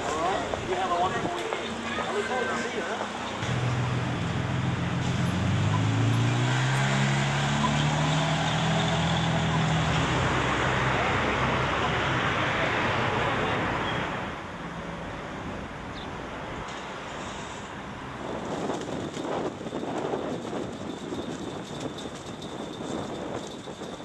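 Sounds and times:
passing traffic noise: 0.0s - 24.0s
car engine speeding up: 3.4s - 12.2s.

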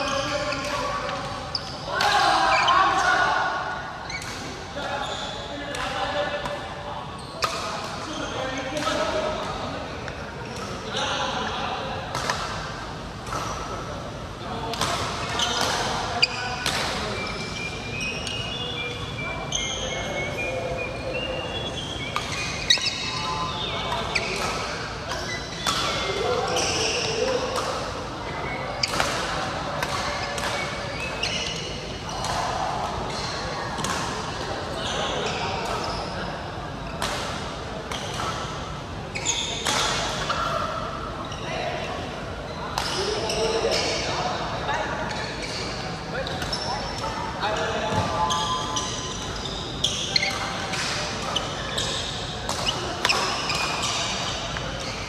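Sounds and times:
shoes squeaking on floor: 0.0s - 3.2s, 4.0s - 5.6s, 7.2s - 9.0s, 15.2s - 27.5s, 30.0s - 32.5s, 39.1s - 40.5s, 45.1s - 55.0s
faint voices: 0.0s - 55.0s.

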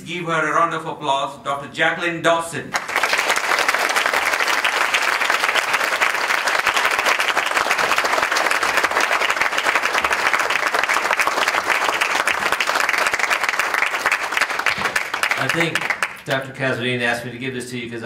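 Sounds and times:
audience applauding: 2.8s - 16.5s.

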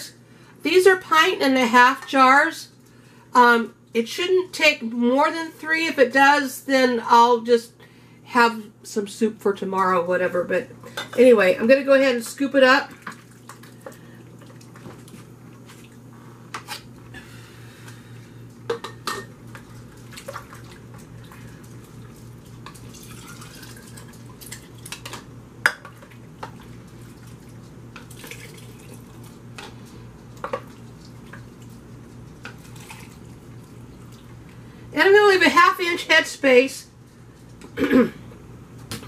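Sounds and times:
steady low hum: 2.6s - 39.0s.

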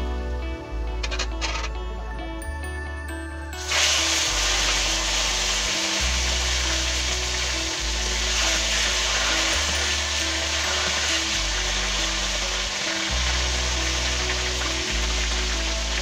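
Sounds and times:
background music with bass line: 0.0s - 16.0s
fish sizzling in hot oil: 3.6s - 16.0s.

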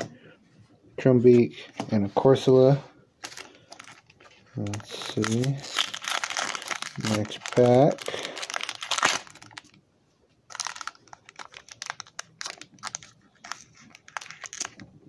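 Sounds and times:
foil wrapper tearing and crackling: 4.6s - 9.8s, 10.5s - 14.9s.

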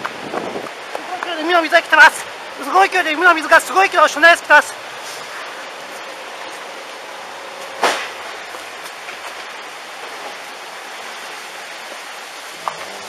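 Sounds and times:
floodwater rushing through street: 0.0s - 13.0s
sharp bang: 7.8s - 8.3s.

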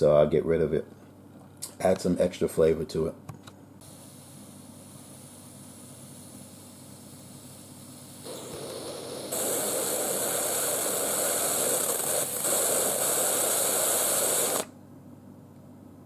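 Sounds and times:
steam hissing from pressure cooker: 3.8s - 14.7s.

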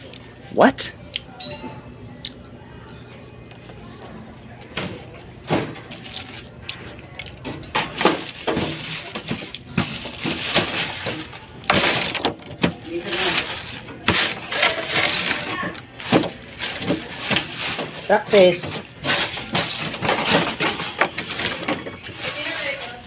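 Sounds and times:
plastic bag crinkling: 5.8s - 23.0s.

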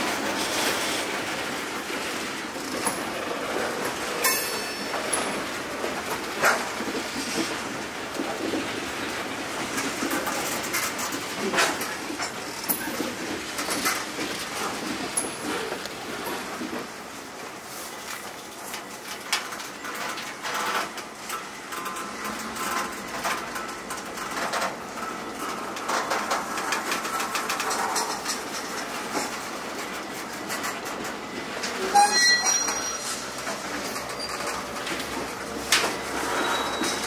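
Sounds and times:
train wheels clicking on rails: 0.0s - 37.0s
short high-pitched tones: 31.8s - 33.2s.

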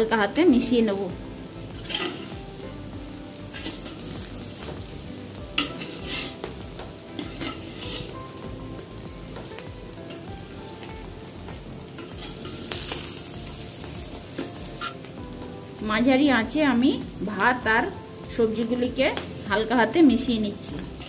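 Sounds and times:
oil sizzling: 0.0s - 21.0s
metal spatula scraping pot: 1.8s - 2.3s, 5.6s - 6.4s, 7.2s - 8.2s, 14.8s - 15.0s.

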